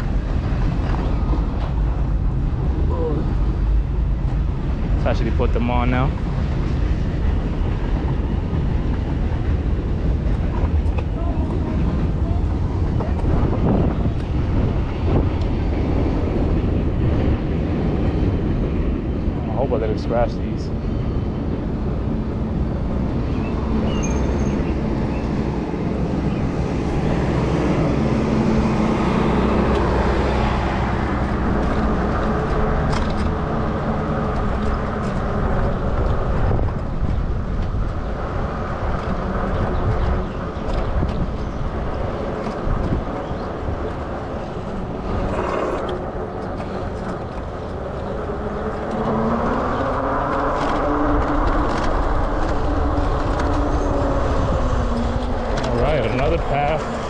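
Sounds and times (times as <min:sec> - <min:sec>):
wind on microphone: 0:00.0 - 0:57.0
tyre noise on trail: 0:21.8 - 0:57.0.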